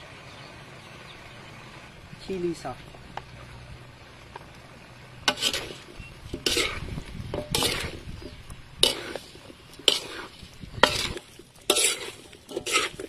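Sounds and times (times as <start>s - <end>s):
utensil scraping and clattering in pan: 5.2s - 13.0s.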